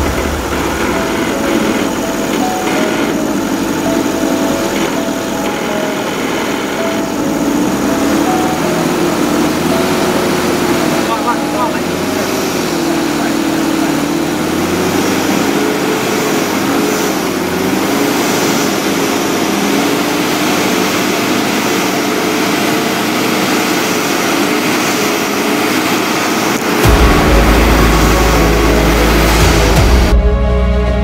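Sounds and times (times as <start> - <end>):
loud deep sound: 0.0 - 17.6, 26.8 - 31.0
engine revving under load: 0.0 - 31.0.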